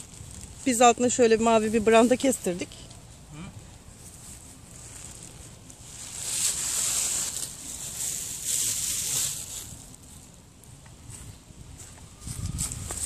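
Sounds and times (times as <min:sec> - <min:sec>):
tent fabric rustling and crinkling: 0:00.0 - 0:03.0, 0:03.9 - 0:10.4.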